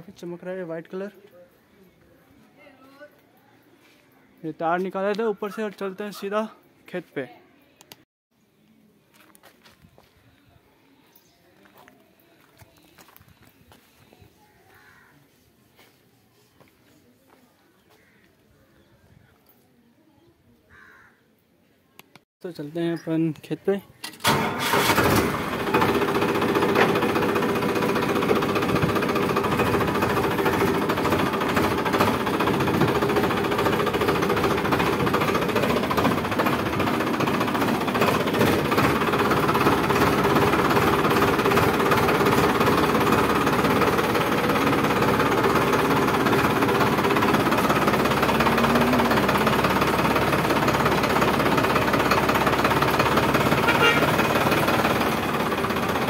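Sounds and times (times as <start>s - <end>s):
tractor diesel engine running: 24.1s - 56.0s.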